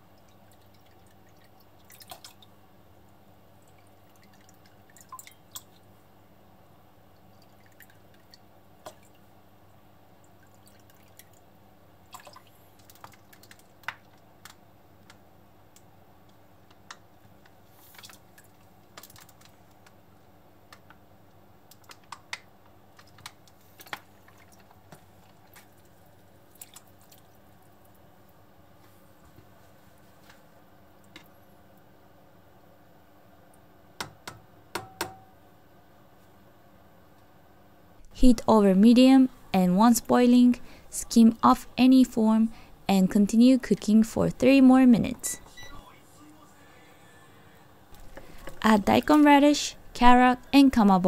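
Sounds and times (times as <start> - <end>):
light clicks and drips: 0.0 - 5.9, 7.1 - 29.5, 30.2 - 31.9.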